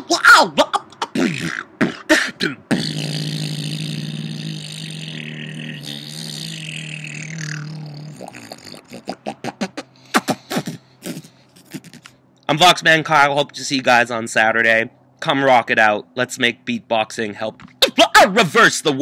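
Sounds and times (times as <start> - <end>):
held low hum with hiss: 0.0 - 19.0.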